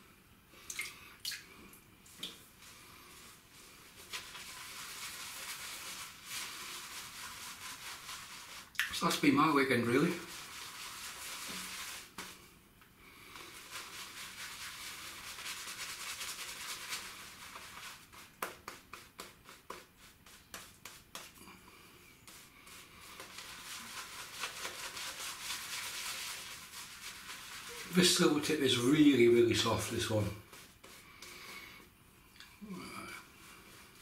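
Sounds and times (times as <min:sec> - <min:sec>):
shaving brush swishing: 0:02.6 - 0:12.5, 0:13.3 - 0:21.4, 0:22.2 - 0:31.3.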